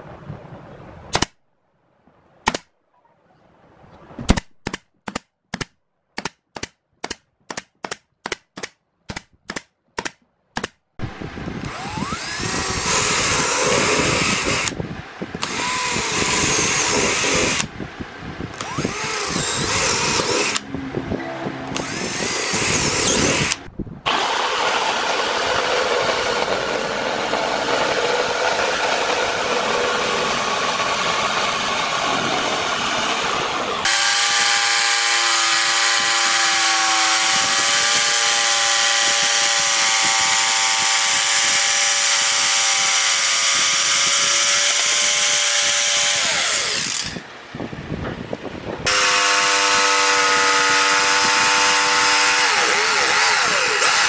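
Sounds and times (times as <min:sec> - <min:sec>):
electric drill boring plywood: 0:11.6 - 0:14.8, 0:15.4 - 0:17.7, 0:18.5 - 0:20.6, 0:21.7 - 0:47.2, 0:48.9 - 0:54.0
pneumatic nail gun firing: 0:11.6 - 0:14.8, 0:15.4 - 0:17.7, 0:18.5 - 0:20.6, 0:21.7 - 0:32.3, 0:33.0 - 0:47.2, 0:48.9 - 0:54.0.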